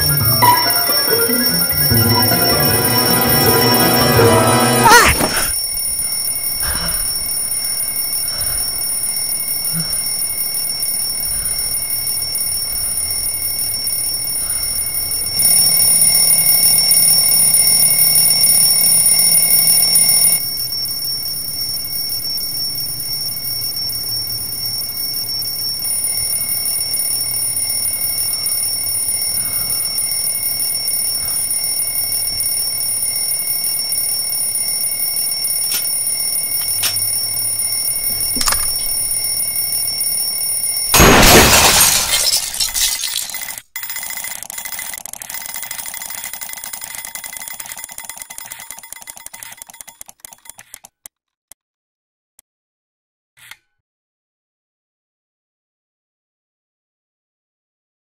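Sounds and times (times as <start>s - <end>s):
alarm clock ringing: 0.0s - 41.0s, 43.2s - 50.6s.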